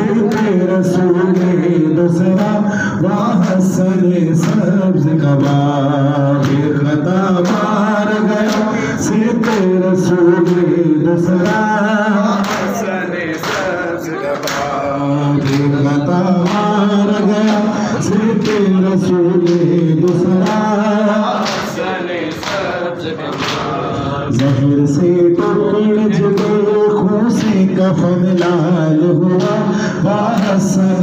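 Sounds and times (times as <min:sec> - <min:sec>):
man singing into a microphone: 0:00.0 - 0:22.2, 0:22.9 - 0:31.0.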